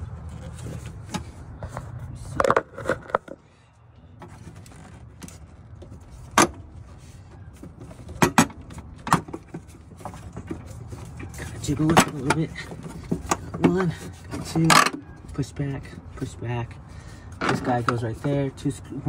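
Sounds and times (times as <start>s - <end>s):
clicks and knocks of car parts: 0.7s - 3.5s, 4.1s - 15.2s, 17.3s - 18.6s.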